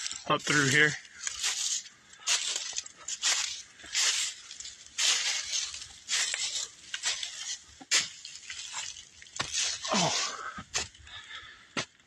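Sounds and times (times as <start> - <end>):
footsteps crunching dry leaves: 0.0 - 11.9.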